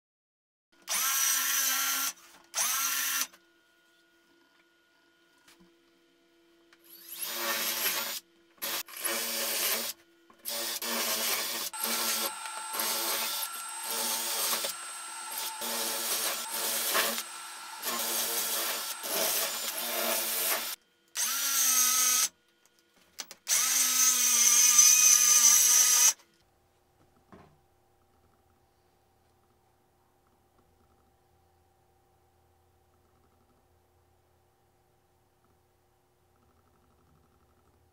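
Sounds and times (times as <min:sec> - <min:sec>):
drill boring through plywood: 0:00.9 - 0:03.3, 0:06.9 - 0:22.3, 0:23.5 - 0:26.2
higher-pitched motor running: 0:11.7 - 0:20.8.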